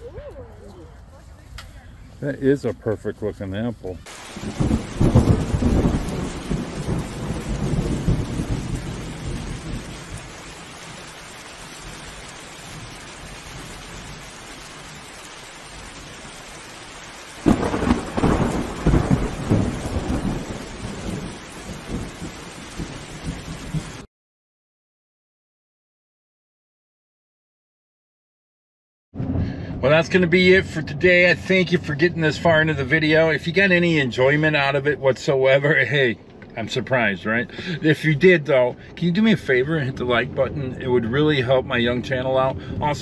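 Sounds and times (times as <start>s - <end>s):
steady rain: 3.6s - 24.1s, 29.8s - 43.0s
thunder rumbling: 4.0s - 24.1s, 29.2s - 34.8s, 36.7s - 43.0s
thunder clap: 4.1s - 24.1s.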